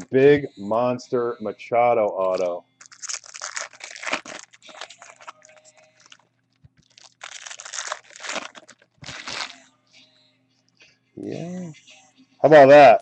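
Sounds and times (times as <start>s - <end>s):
foil wrapper crinkling and tearing: 2.3s - 9.7s
cards rustling: 2.4s - 9.6s.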